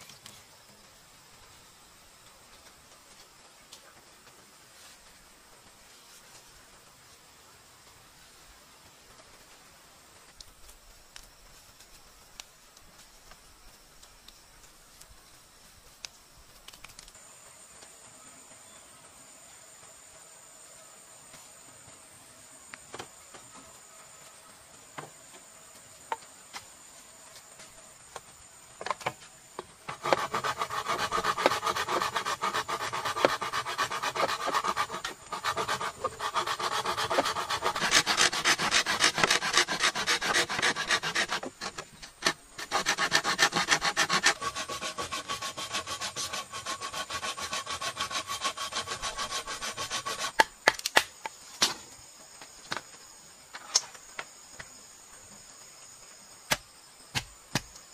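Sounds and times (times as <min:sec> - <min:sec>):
blade rasping on bamboo: 0:29.9 - 0:50.5.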